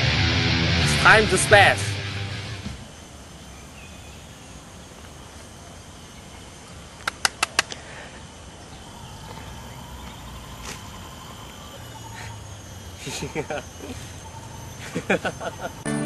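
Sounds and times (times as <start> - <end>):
outdoor background noise: 0.0 - 16.0
sharp loud clicks: 7.0 - 7.8.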